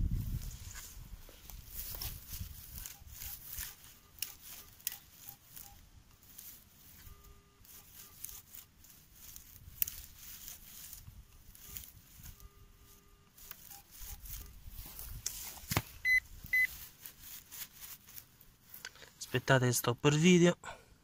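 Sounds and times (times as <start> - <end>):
coil brushing through grass: 0.0 - 19.5
metal detector steady tones: 0.4 - 19.2
metal detector beeps: 1.7 - 15.2, 16.0 - 16.8.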